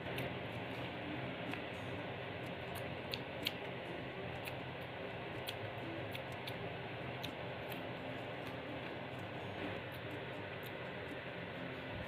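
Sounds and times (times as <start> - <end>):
chewing crisp lettuce: 2.4 - 12.0.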